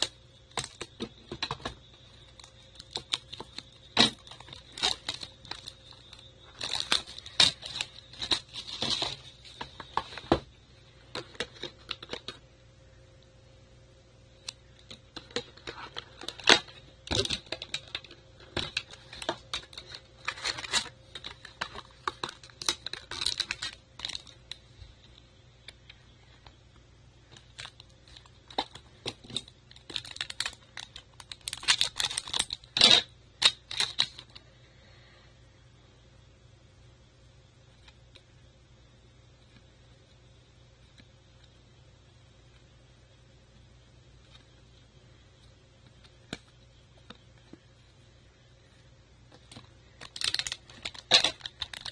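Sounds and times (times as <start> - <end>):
foil packs and cards crinkling: 0.0 - 12.4, 14.5 - 24.7, 27.3 - 34.4, 49.3 - 51.9.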